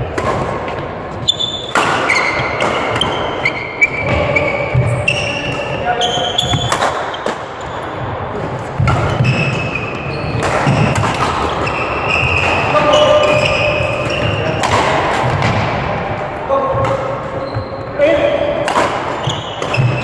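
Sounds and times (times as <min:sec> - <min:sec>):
rackets hitting shuttlecock: 0:00.1 - 0:00.9, 0:01.6 - 0:04.2, 0:04.8 - 0:07.8, 0:08.8 - 0:15.9, 0:18.6 - 0:20.0
shoes squeaking on floor: 0:01.1 - 0:14.6, 0:17.2 - 0:18.2, 0:19.2 - 0:20.0.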